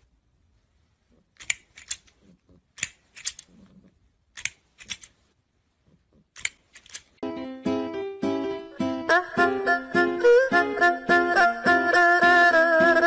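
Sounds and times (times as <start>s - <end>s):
plastic toy jaws clacking: 1.3s - 3.7s, 4.3s - 5.2s, 6.3s - 7.2s.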